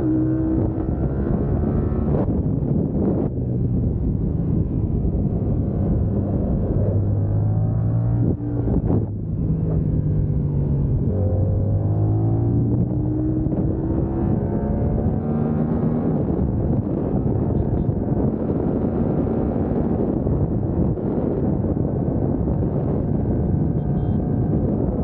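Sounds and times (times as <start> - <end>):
wind noise on microphone: 0.0 - 25.0
motorcycle engine running hard: 8.3 - 25.0.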